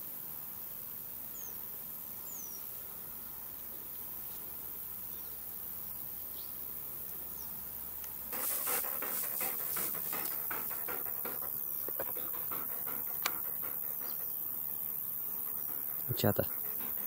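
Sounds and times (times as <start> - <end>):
dog panting: 8.3 - 17.0.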